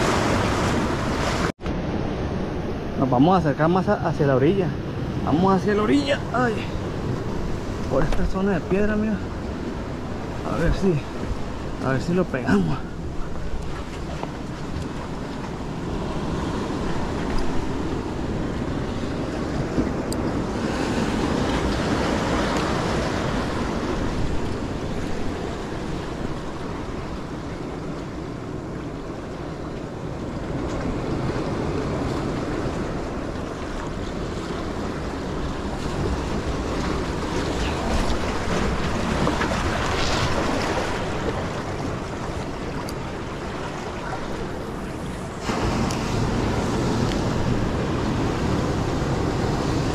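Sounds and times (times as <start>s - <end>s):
surf washing against rocks: 0.0s - 49.9s
wind gusting across microphone: 0.0s - 49.9s.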